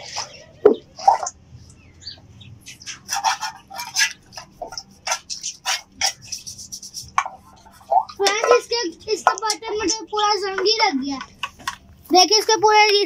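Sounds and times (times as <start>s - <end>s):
brush scrubbing steel bowl: 2.7s - 11.0s.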